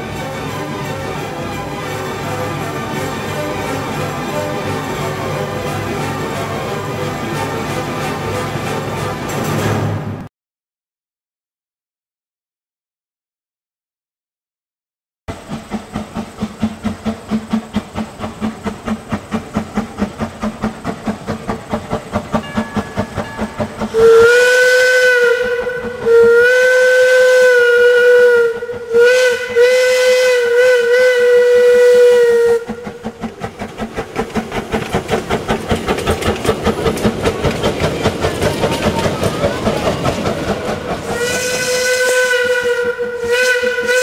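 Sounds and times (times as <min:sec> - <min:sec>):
steam locomotive chuffing: 0:00.0 - 0:10.2, 0:15.3 - 0:44.0
steam whistle blasts: 0:23.8 - 0:32.9, 0:41.0 - 0:44.0.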